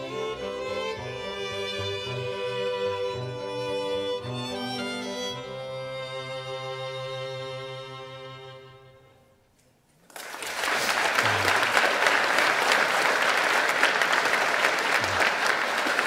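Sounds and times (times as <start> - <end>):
audience applause: 10.1 - 16.0.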